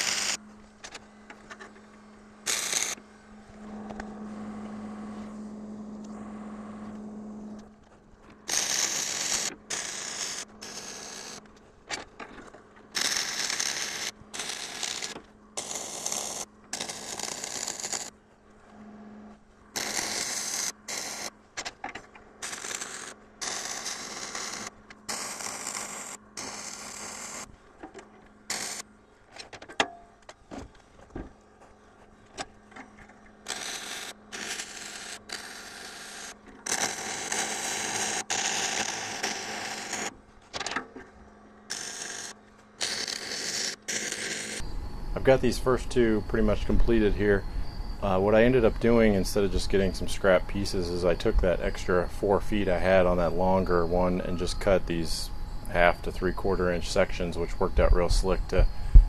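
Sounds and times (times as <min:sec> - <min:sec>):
arc welding bursts: 0:00.0 - 0:00.4, 0:02.4 - 0:03.0, 0:08.5 - 0:11.4, 0:13.0 - 0:18.1, 0:19.8 - 0:21.3, 0:22.4 - 0:27.5, 0:33.5 - 0:40.1
steady low hum: 0:00.0 - 0:59.0.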